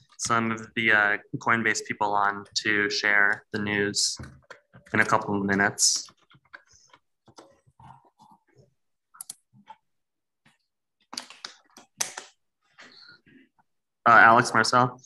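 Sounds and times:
keyboard typing clicks: 9.2s - 9.5s.

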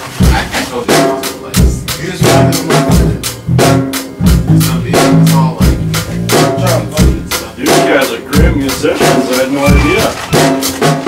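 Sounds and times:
drum kit beat: 0.0s - 11.0s
electric bass guitar: 1.5s - 8.9s.

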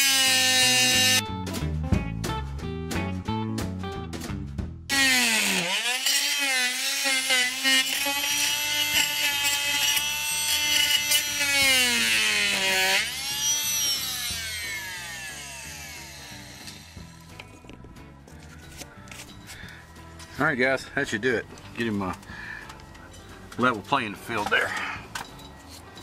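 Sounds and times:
oscillating multi-tool motor whine: 4.9s - 17.0s.

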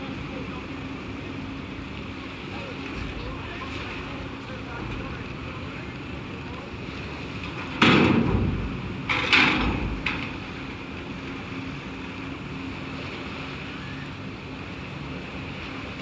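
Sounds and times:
wheels clunking over metal ramp: 7.4s - 10.8s.

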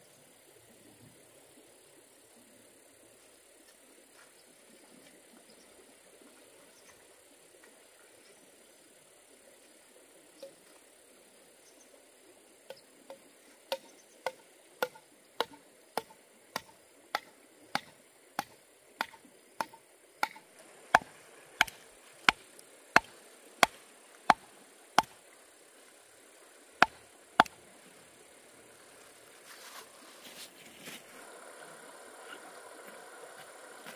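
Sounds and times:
insect chirring: 0.0s - 30.4s
sharp chopping strikes: 13.7s - 20.4s, 21.0s - 22.4s, 26.8s - 27.6s.

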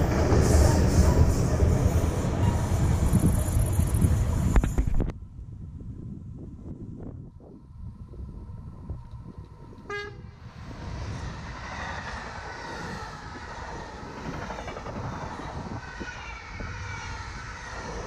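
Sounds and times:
train wheels rushing on rails: 0.0s - 5.0s, 9.8s - 18.0s
train horn blast: 9.8s - 10.3s.

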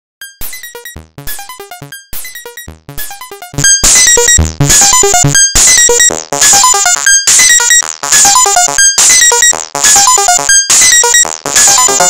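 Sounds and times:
electronic percussion hits: 0.2s - 8.4s.

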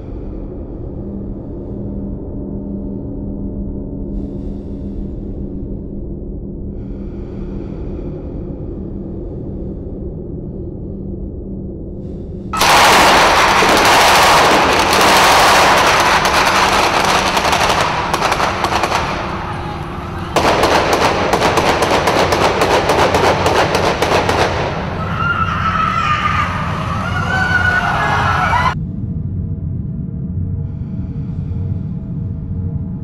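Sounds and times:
low steady drone: 0.0s - 33.0s
automatic gunfire: 12.6s - 25.1s.

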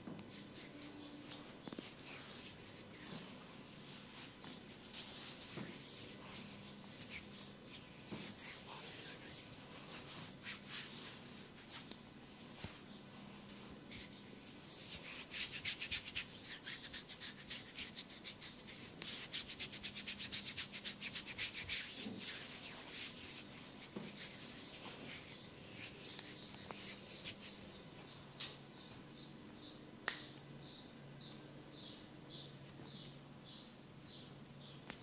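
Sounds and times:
rubbing and scratching on hair: 0.3s - 28.2s.

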